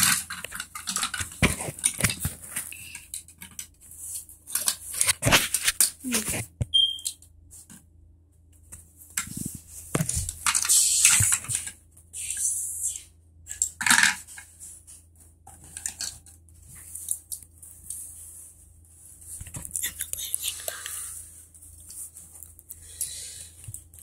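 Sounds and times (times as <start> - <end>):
plastic brick pieces clattering: 0.0 - 3.7
rustling and crinkling: 0.0 - 6.7, 7.5 - 12.1, 13.8 - 24.0.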